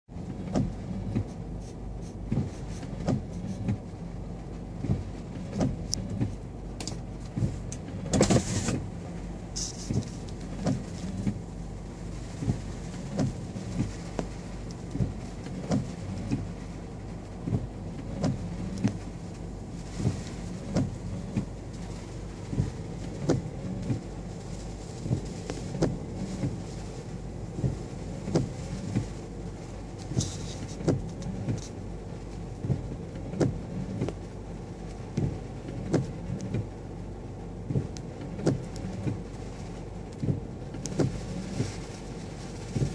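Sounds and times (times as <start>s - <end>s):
car engine hum: 0.0s - 42.9s
windshield wipers sweeping rain: 0.1s - 42.9s
wiper blade knock: 2.3s - 3.8s.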